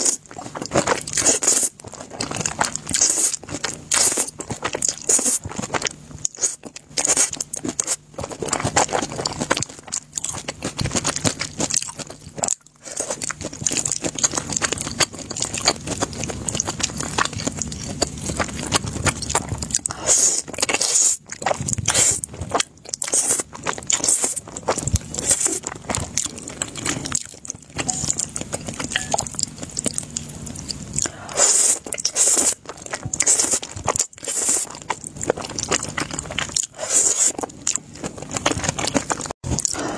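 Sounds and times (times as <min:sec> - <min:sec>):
chewing: 0:00.0 - 0:39.9
wet slurping of noodles: 0:19.9 - 0:22.3, 0:31.0 - 0:32.6, 0:36.7 - 0:37.4.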